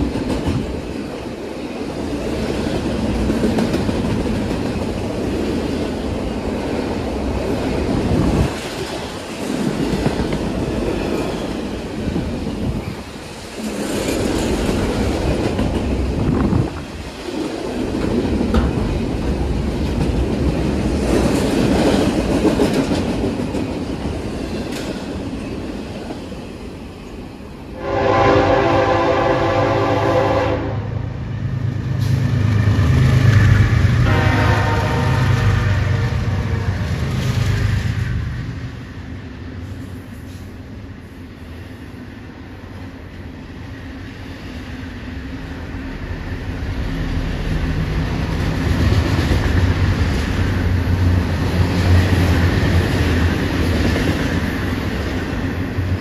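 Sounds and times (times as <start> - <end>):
freight train rumble and wheel clatter: 0.0 - 56.0
locomotive air horn blasts: 27.8 - 31.0, 34.0 - 36.9.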